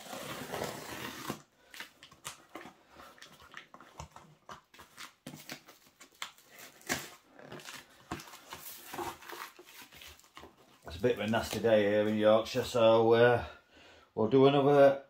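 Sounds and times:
utility knife slitting packing tape: 0.0s - 2.3s.

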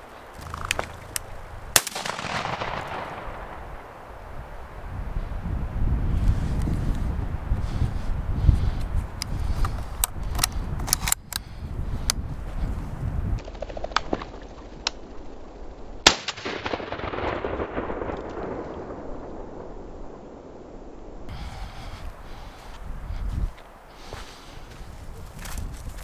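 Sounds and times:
rustling: 0.0s - 3.0s
shotgun firing: 1.8s - 3.9s, 16.0s - 18.5s.

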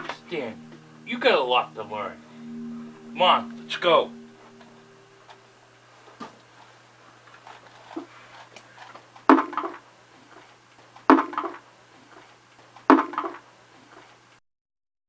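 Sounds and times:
faint low hum: 0.0s - 10.5s.

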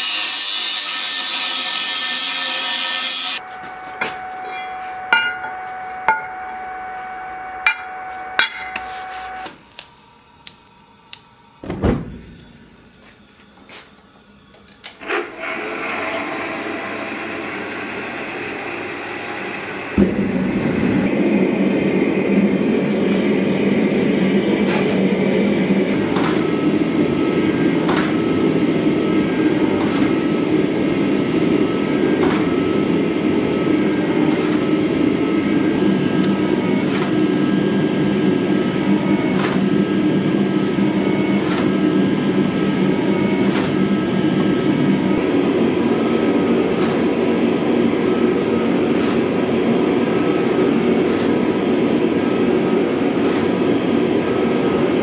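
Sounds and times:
gas forge burner roaring: 0.0s - 55.0s
thin high tone: 3.4s - 9.5s
hydraulic press humming: 3.4s - 55.0s.

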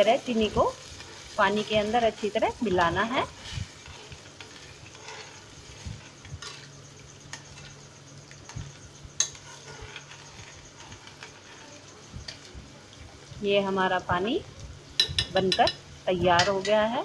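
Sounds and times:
steel spoon stirring in pan: 0.0s - 13.4s, 14.8s - 17.0s
spoon clinking against pan: 15.0s - 15.8s.

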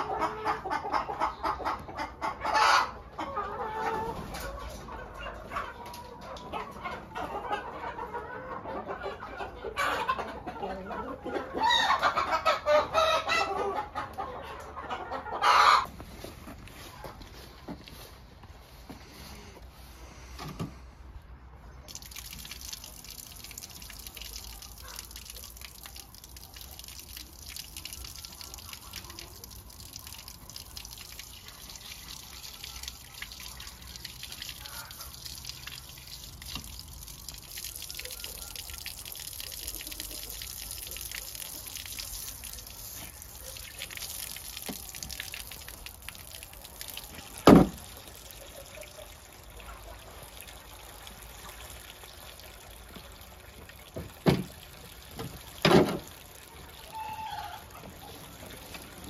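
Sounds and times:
water dripping and trickling: 17.2s - 18.8s, 21.8s - 59.0s.

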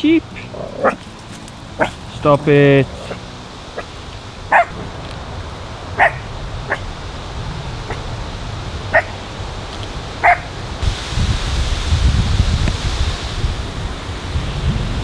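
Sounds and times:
small dog barking: 0.7s - 1.0s, 1.8s - 2.0s, 4.5s - 4.9s, 6.0s - 6.9s, 8.9s - 9.2s, 10.2s - 10.5s.

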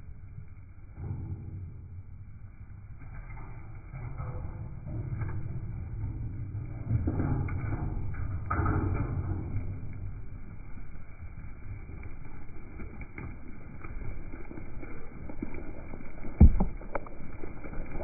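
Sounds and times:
sheep hooves trotting on mud: 11.5s - 18.0s.

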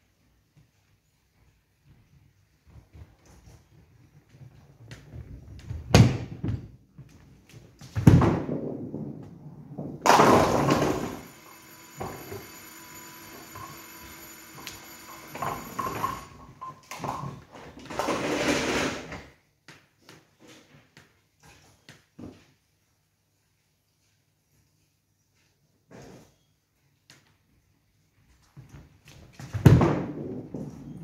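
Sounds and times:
ball crashing into pins: 7.8s - 11.3s, 29.4s - 31.0s
bowling ball rolling on lane: 8.2s - 16.4s
pinsetter humming: 10.1s - 16.6s.

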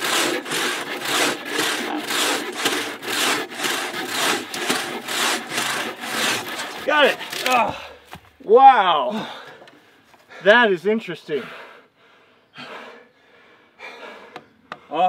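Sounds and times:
hand saws rasping through log: 0.0s - 7.8s.

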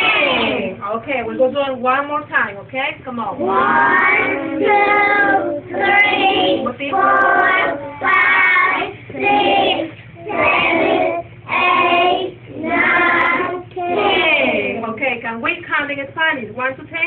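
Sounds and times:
children chanting in unison: 3.4s - 14.4s.

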